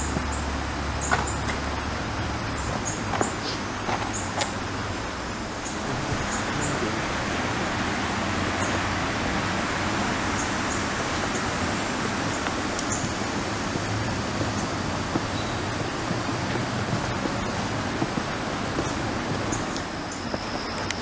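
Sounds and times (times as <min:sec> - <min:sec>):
river rapids rushing: 0:00.0 - 0:21.0.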